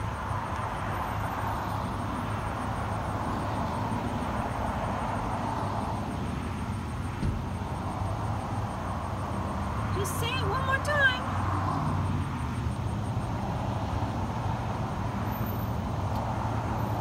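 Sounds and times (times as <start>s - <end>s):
idling vehicles and traffic hum: 0.0s - 17.0s.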